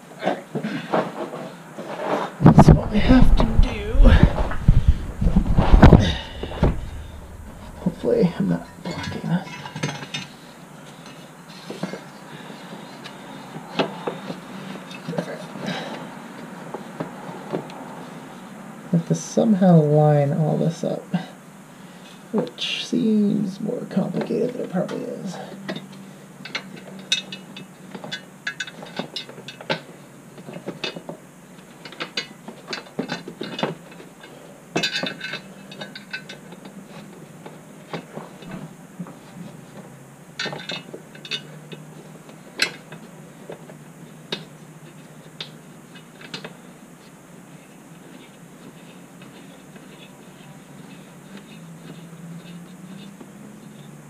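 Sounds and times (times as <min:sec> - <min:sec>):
low steady hum: 0:02.4 - 0:16.7
metal parts clicking and clinking: 0:25.7 - 0:29.8, 0:31.8 - 0:36.7, 0:40.4 - 0:41.8.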